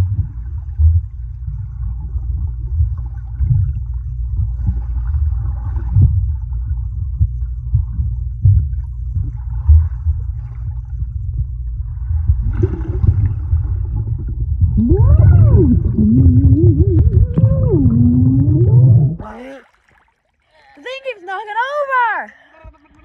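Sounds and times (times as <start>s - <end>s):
muffled underwater rumble: 0.0s - 19.4s
person humming underwater: 14.6s - 19.7s.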